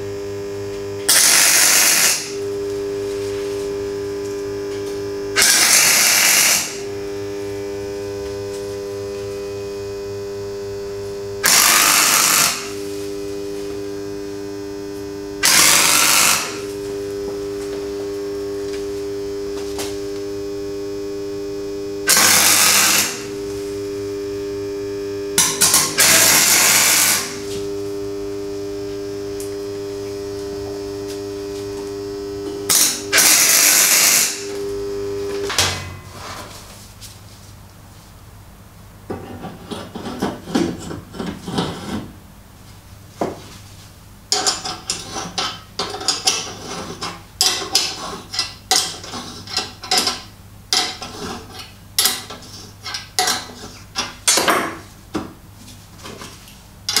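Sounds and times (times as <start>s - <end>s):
welder hum: 0.0s - 37.1s, 56.6s - 57.0s
welding arc crackle: 0.2s - 36.2s.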